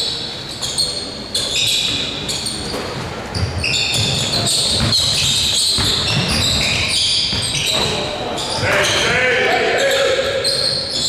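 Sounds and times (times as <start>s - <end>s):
sneakers squeaking on gym floor: 0.0s - 11.0s
basketball dribbling thuds: 2.7s - 9.1s.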